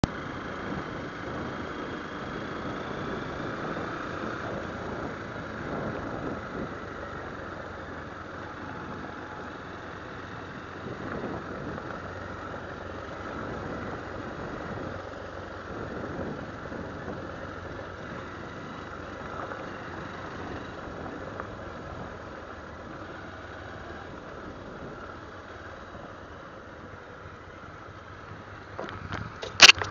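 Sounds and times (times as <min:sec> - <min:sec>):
motorcycle engine running: 0:00.0 - 0:29.9.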